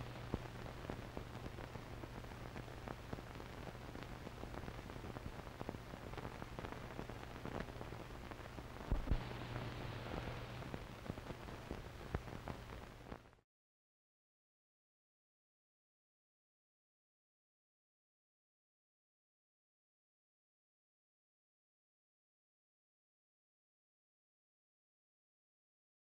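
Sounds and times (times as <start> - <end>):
crackles and pops: 0.0 - 13.4
film soundtrack hiss: 0.0 - 13.4.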